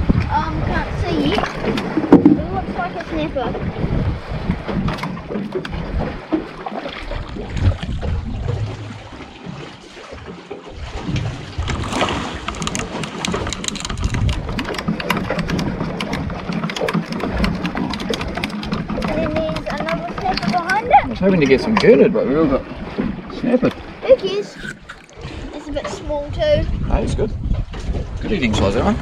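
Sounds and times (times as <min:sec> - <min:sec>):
water slapping boat hull: 0:00.0 - 0:29.0
wind buffeting microphone: 0:00.0 - 0:29.0
sharp clicks and knocks: 0:10.3 - 0:21.9.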